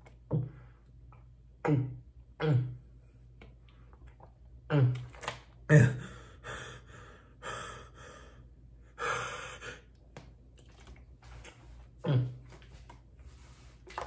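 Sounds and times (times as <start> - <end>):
man gasping: 5.7 - 9.9.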